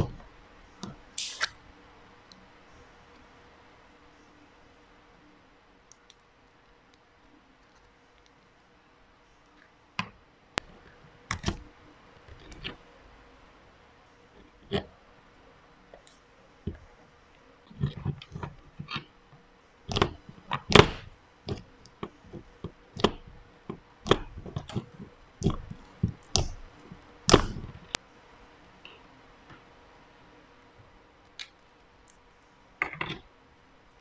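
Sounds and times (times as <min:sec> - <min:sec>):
fingers pressing into slime: 0:19.9 - 0:22.0, 0:23.0 - 0:23.3, 0:24.0 - 0:26.7, 0:27.3 - 0:28.0.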